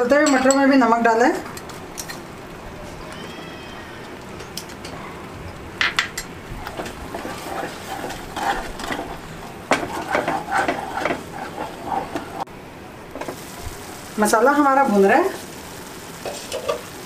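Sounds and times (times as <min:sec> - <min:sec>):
spatula stirring thick sauce: 0:06.6 - 0:12.5
spatula knocking against pan: 0:09.7 - 0:12.4.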